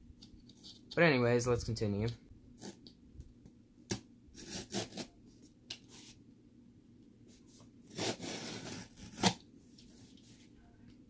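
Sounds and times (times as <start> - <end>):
knife slicing packing tape: 4.4 - 5.1, 7.9 - 9.4.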